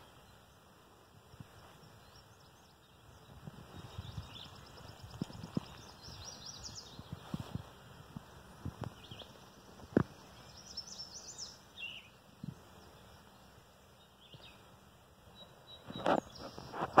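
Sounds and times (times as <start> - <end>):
rustling noise: 3.4 - 10.4, 15.8 - 17.0
short bird chirps: 15.3 - 17.0.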